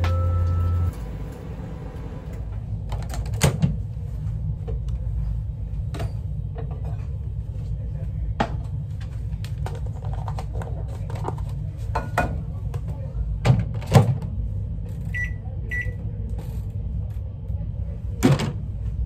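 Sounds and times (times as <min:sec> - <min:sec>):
low hum: 0:00.0 - 0:10.4.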